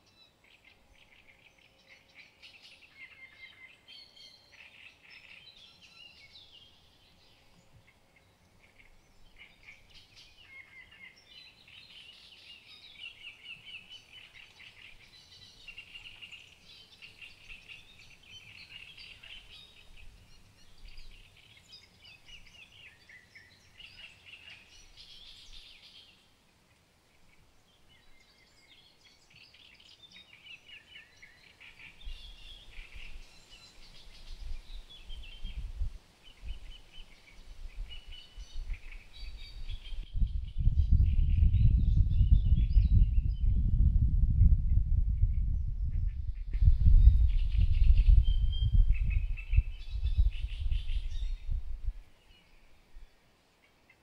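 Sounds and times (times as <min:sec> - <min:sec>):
songbirds singing: 0:00.0 - 0:54.0
wind rumble on microphone: 0:13.6 - 0:23.1, 0:31.8 - 0:53.1.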